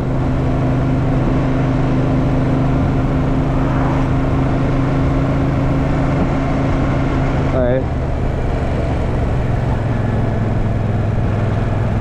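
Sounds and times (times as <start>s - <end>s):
motorcycle engine running: 0.0s - 12.0s
wind rush on microphone: 0.0s - 12.0s.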